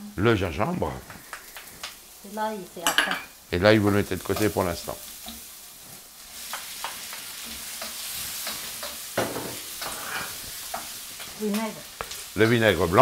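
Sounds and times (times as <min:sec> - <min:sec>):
food sizzling in oil in a wok: 0:00.0 - 0:13.0
wooden spatula scraping a wok: 0:03.8 - 0:12.3.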